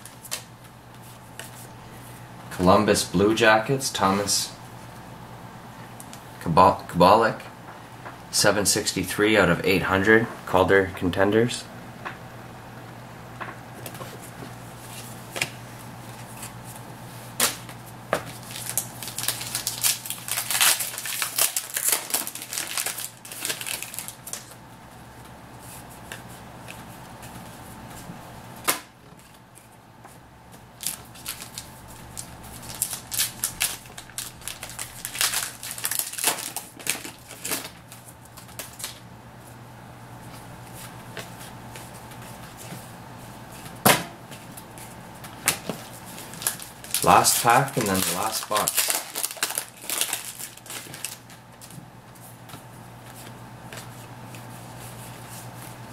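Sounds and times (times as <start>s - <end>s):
cards and wrappers crinkling: 17.4s - 24.6s, 30.8s - 39.0s, 44.4s - 51.8s.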